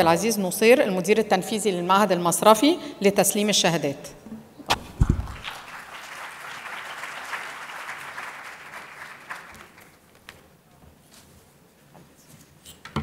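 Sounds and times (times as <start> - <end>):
low thump: 4.7 - 5.4
audience applauding: 5.0 - 10.2.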